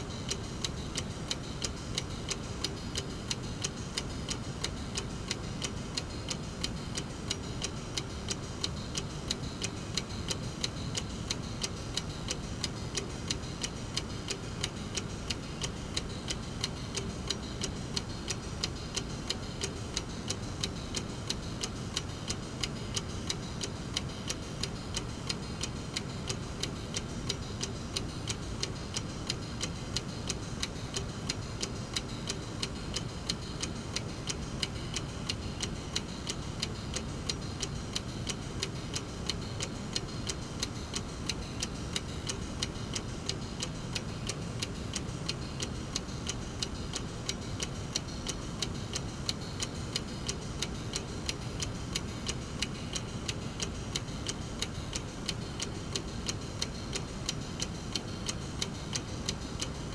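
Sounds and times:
clock ticking: 0:00.0 - 0:59.9.

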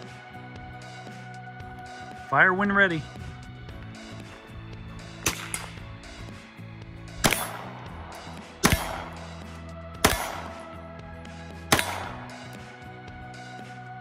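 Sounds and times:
pistol shots: 0:05.2 - 0:05.8, 0:07.2 - 0:09.3, 0:10.0 - 0:10.6, 0:11.7 - 0:12.4.

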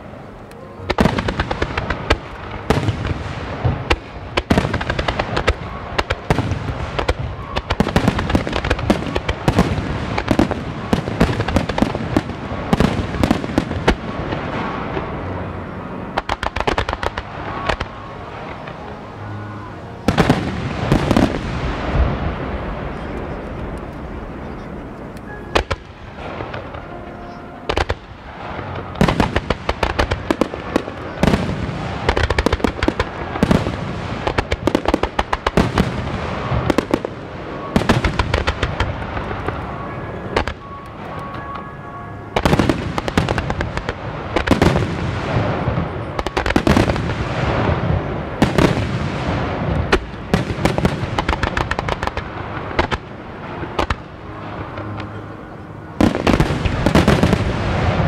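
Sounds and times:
continuous rumble: 0:00.0 - 0:58.0
fireworks bursting: 0:00.0 - 0:58.0.

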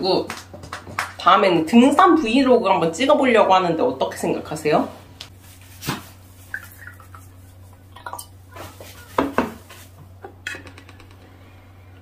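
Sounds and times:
liquid pouring into glass: 0:06.5 - 0:07.3.

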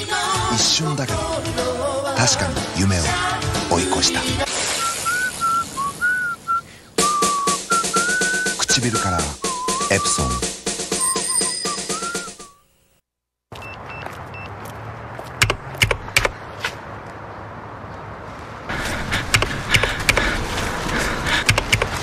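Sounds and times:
music: 0:00.0 - 0:04.5, 0:07.0 - 0:12.5
short high beeps: 0:09.5 - 0:12.6
sharp clicks and knocks: 0:15.4 - 0:16.4, 0:19.3 - 0:20.2, 0:21.4 - 0:22.0.

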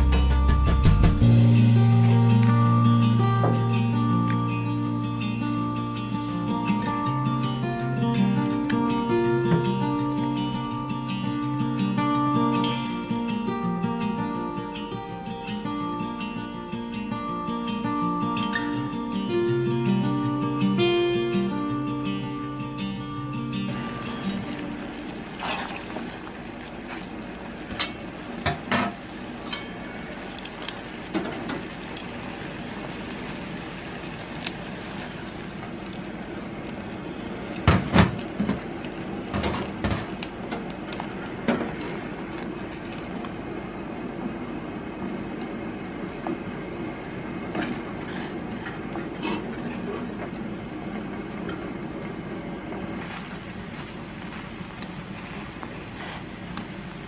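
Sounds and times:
water boiling in a pot: 0:23.7 - 0:57.0.

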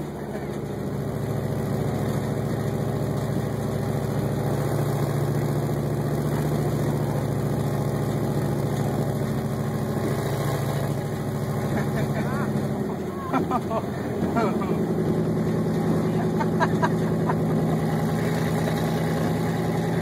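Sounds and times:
truck engine running: 0:00.0 - 0:20.0.

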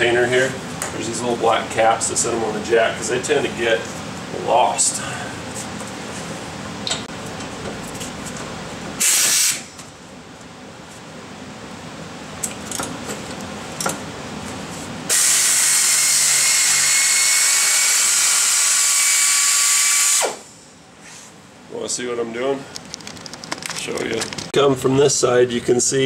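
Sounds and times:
pneumatic air ratchet whining: 0:09.0 - 0:09.7, 0:15.1 - 0:20.6.

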